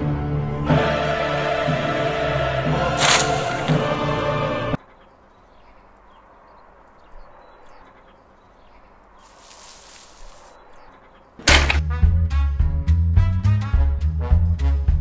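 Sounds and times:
music: 0.0 - 4.8, 11.5 - 15.0
rustle of shrub leaves: 2.9 - 4.0, 5.1 - 11.4.

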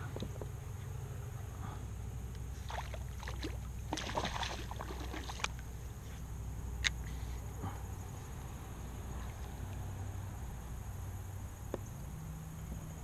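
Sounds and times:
steady low hum: 0.0 - 13.0
fish thrashing and splashing: 2.6 - 5.6.

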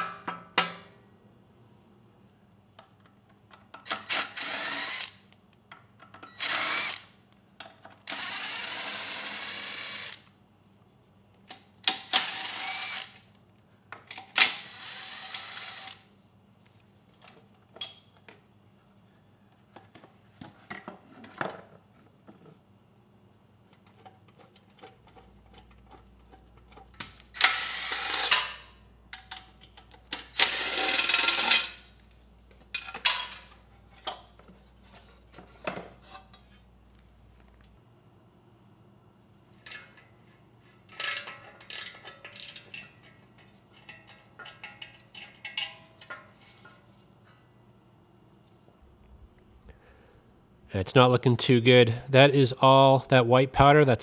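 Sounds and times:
impact driver bursts: 3.9 - 5.2, 6.4 - 7.1, 11.9 - 13.2, 14.4 - 16.0, 27.4 - 28.7, 30.3 - 31.5
clinks of fasteners and parts: 17.2 - 18.4, 28.2 - 31.9, 32.5 - 36.6, 39.6 - 46.8.

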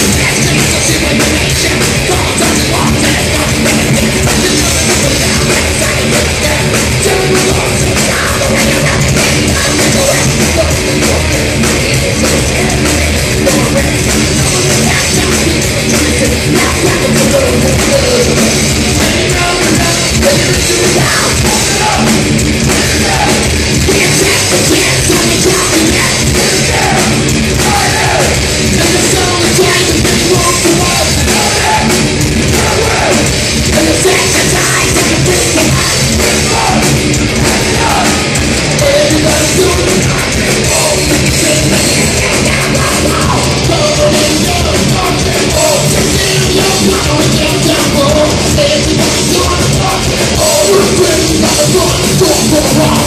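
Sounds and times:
distorted electric guitars: 0.0 - 53.0
drum kit: 0.0 - 53.0
shouted vocals: 20.4 - 41.2.

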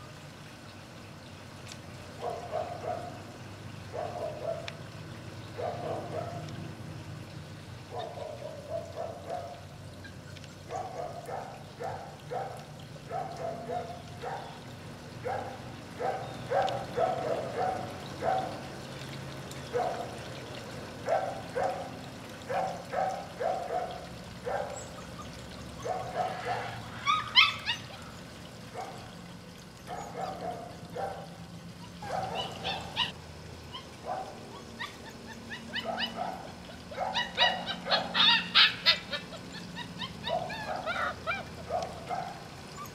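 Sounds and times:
puppies yipping: 7.9 - 14.6, 22.5 - 28.2, 29.9 - 42.9
puppies whining: 24.6 - 28.2, 31.8 - 42.9.

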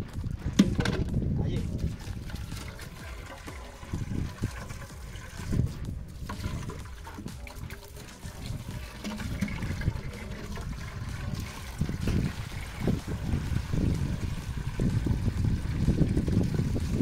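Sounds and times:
muddy water trickling through sieve: 1.6 - 17.0
pot scraping: 1.7 - 14.2.

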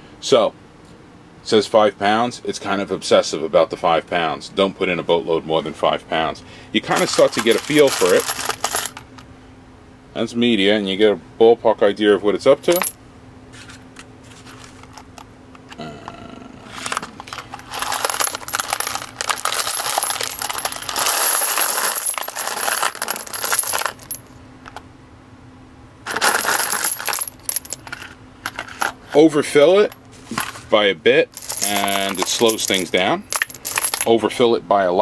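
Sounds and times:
brass cases clattering into tumbler: 6.9 - 9.2, 12.7 - 13.0, 16.8 - 24.8, 26.1 - 29.0, 31.3 - 34.1.

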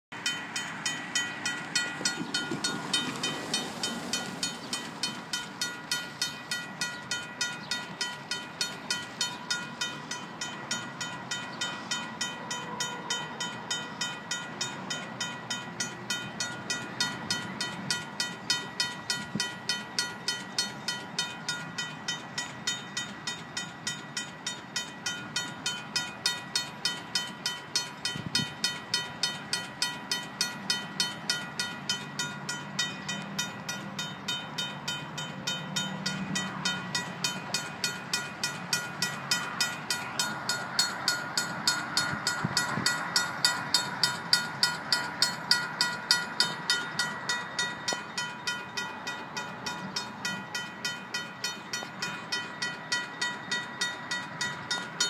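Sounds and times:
railroad crossing bell ringing: 0.1 - 55.0.

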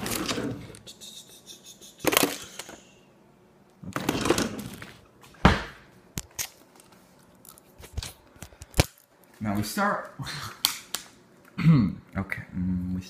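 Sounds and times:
rummaging in a drawer: 0.0 - 0.7, 3.9 - 5.0.

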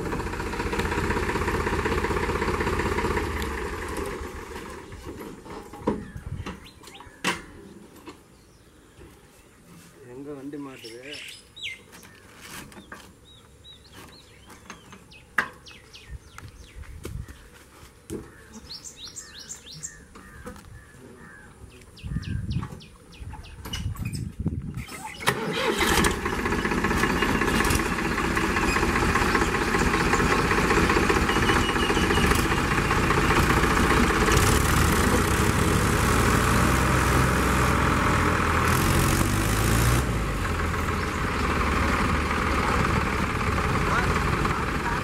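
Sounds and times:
tractor engine running: 0.0 - 6.7, 24.9 - 45.0
bird chirping: 5.9 - 9.4, 10.6 - 17.6, 18.3 - 25.3, 31.2 - 32.5.

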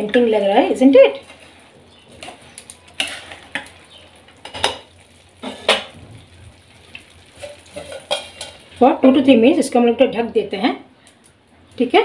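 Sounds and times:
spoon scraping and knocking pan: 1.2 - 6.4, 7.0 - 8.7.

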